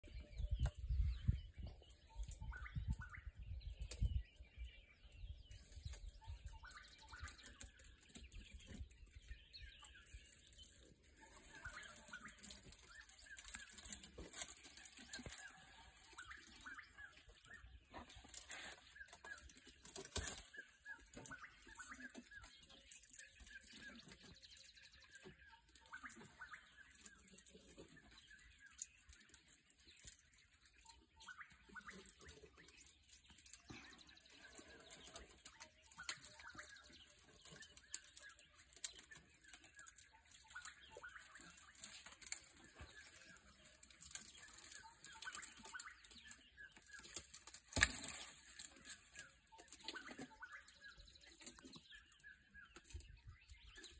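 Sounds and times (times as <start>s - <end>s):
birds chirping: 0.0s - 53.9s
elephant snapping twigs and rustling: 11.2s - 16.8s, 17.4s - 24.5s, 34.5s - 50.4s.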